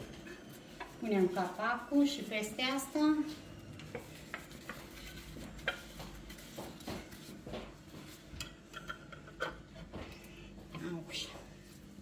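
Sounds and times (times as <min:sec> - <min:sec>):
kitchenware clinking and knocking: 0:08.4 - 0:10.1.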